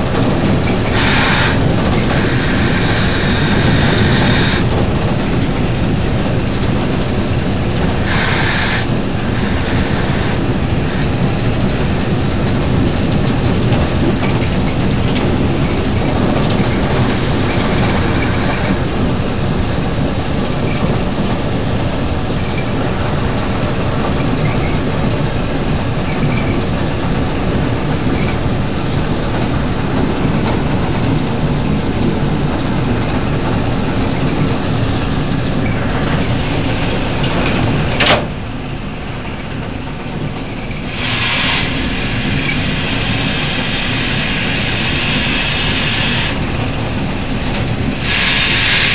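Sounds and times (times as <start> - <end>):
train wheels and engine rumbling: 0.0 - 48.9
loud hiss: 0.6 - 5.0, 7.5 - 12.0, 16.5 - 18.9, 40.8 - 46.6, 47.9 - 48.9.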